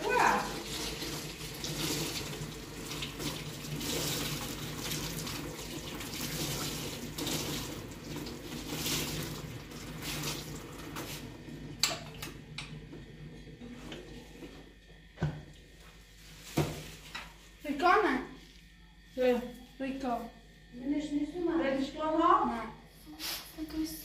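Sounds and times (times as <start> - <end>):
running water: 0.0 - 12.2.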